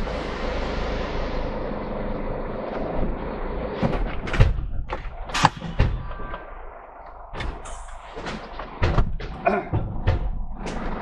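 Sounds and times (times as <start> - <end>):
lorry engine running: 0.0 - 6.3
sharp knocks and thuds: 3.8 - 6.5, 7.3 - 11.0.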